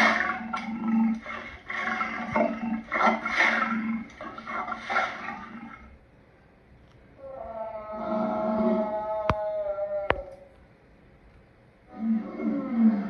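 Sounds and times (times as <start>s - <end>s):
lion grunting: 0.0s - 6.0s.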